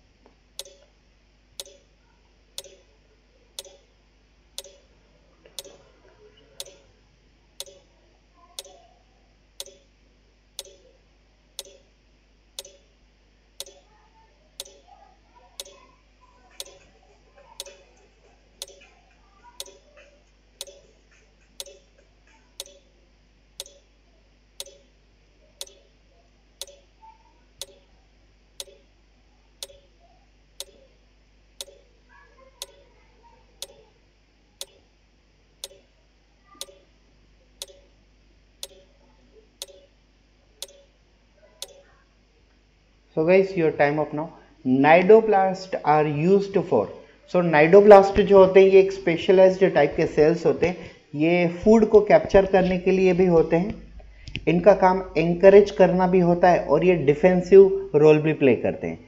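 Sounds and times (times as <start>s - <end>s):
clock ticking: 0.6s - 0.9s, 1.6s - 1.8s, 2.6s - 2.8s, 3.6s - 3.8s, 4.6s - 4.8s, 5.6s - 5.8s, 6.6s - 6.8s, 7.6s - 7.8s, 9.6s - 9.8s, 10.6s - 10.8s, 11.6s - 11.8s, 12.6s - 12.8s, 13.6s - 13.8s, 14.6s - 14.8s, 15.6s - 15.8s, 16.6s - 16.9s, 17.6s - 17.8s, 18.6s - 18.8s, 19.6s - 19.8s, 20.6s - 20.8s, 21.6s - 21.9s, 22.6s - 22.9s, 23.6s - 23.8s, 24.6s - 24.9s, 25.6s - 25.8s, 26.6s - 26.8s, 27.6s - 27.8s, 28.6s - 28.8s, 29.6s - 29.9s, 30.6s - 30.8s, 31.6s - 31.8s, 32.6s - 32.8s, 33.6s - 33.8s, 34.6s - 34.8s, 35.6s - 35.8s, 36.6s - 36.8s, 37.6s - 37.9s, 38.6s - 38.9s, 39.6s - 39.9s, 40.6s - 40.8s.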